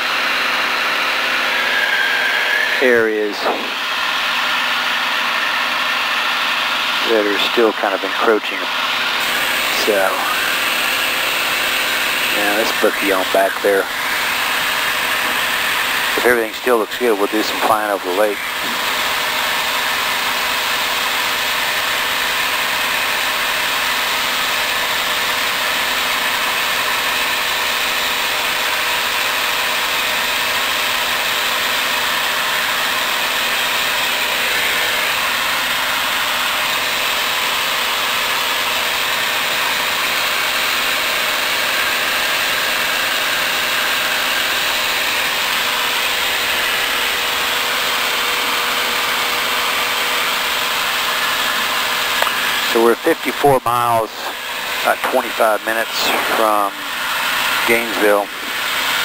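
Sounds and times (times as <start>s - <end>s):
propeller airplane drone: 0.0s - 59.0s.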